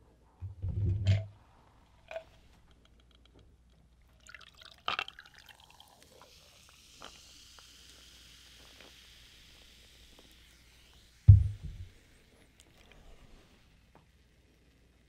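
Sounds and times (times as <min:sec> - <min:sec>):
cola pouring over ice: 0:04.1 - 0:09.0
fizzing hiss: 0:04.5 - 0:15.0.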